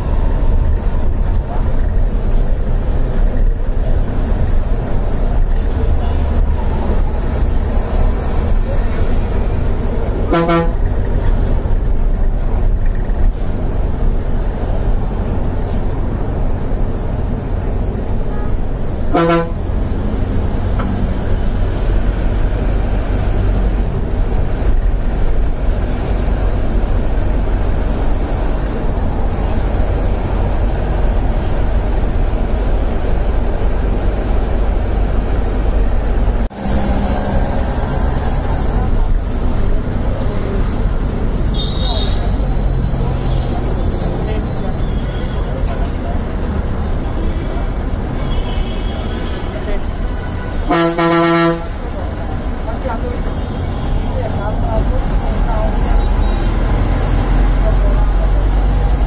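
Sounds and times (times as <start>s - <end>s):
bus engine and road rumble: 0.0s - 59.0s
bus horn toots: 10.2s - 11.1s, 18.2s - 19.7s, 41.5s - 42.4s, 48.1s - 51.9s.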